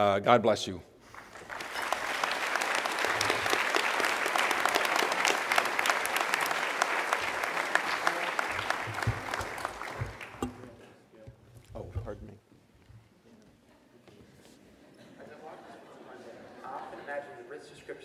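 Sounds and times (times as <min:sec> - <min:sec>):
audience applauding: 0:01.1 - 0:10.7.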